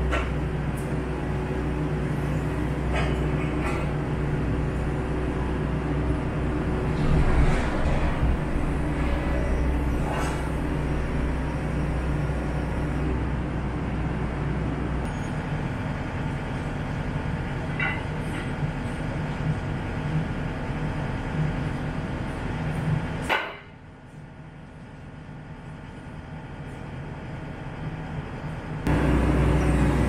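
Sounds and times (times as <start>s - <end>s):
excavator diesel engine running: 0.0s - 17.8s, 28.8s - 30.0s.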